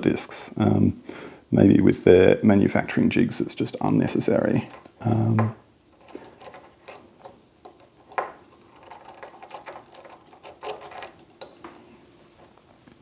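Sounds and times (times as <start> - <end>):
high metallic ring: 4.5 - 12.5
metallic clicks of lock parts: 4.6 - 11.7.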